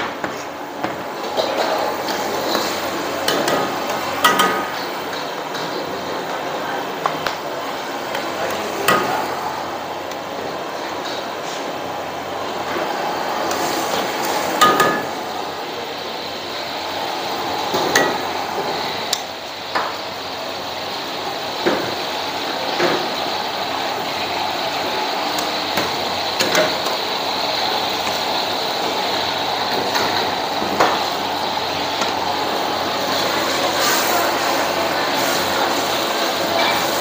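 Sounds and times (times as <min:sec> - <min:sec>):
kitchen background noise: 0:00.0 - 0:37.0
metal utensils clinking on pots: 0:03.2 - 0:06.0.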